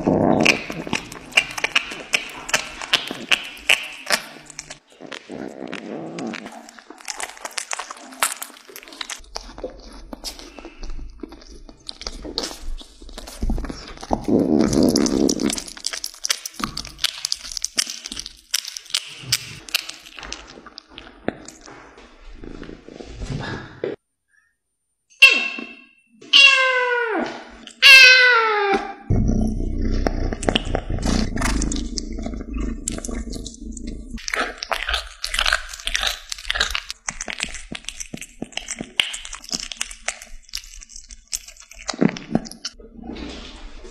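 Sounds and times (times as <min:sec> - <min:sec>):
cat chewing raw meat: 0:00.0 - 0:21.7, 0:29.8 - 0:42.8
low rumble: 0:29.1 - 0:34.2.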